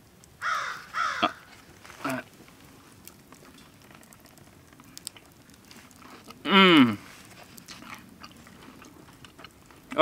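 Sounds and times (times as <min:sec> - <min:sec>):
bird's harsh calls: 0:00.4 - 0:01.4.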